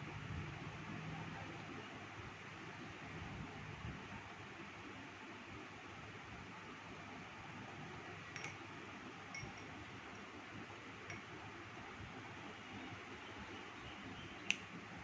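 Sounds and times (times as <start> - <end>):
clinks of puppy eating: 8.4 - 8.6, 9.3 - 9.8.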